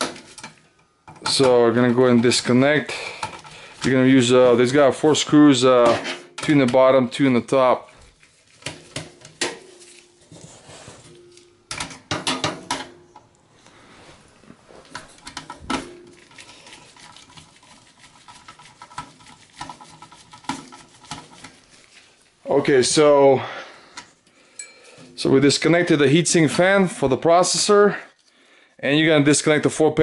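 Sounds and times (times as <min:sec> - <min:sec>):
light metallic clinks: 0:24.5 - 0:24.9.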